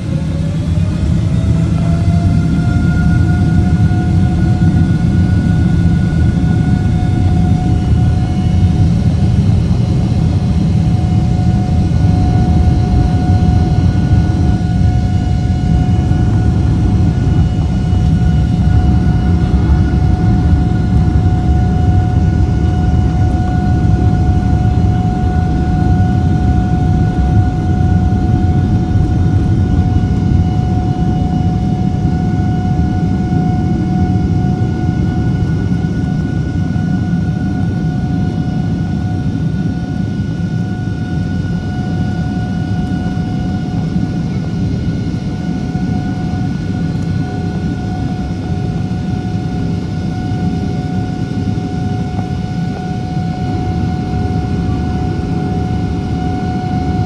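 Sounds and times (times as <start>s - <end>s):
jet engine deep rumble: 0.0s - 57.0s
jet engine fan whine: 0.0s - 57.0s.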